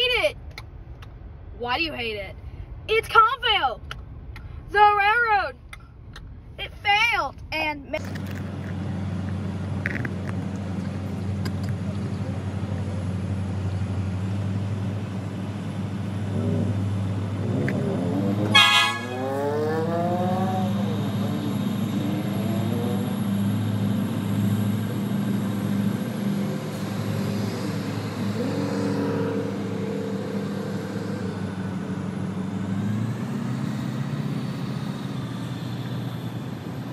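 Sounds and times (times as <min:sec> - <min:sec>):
low engine hum: 0:00.0 - 0:36.9
horn toot: 0:18.4 - 0:19.6.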